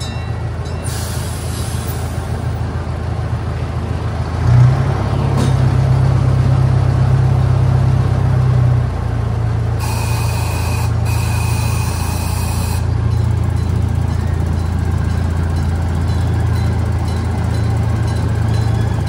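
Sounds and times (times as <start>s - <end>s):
train engine humming: 0.0s - 19.0s
high steady tone: 9.8s - 19.0s.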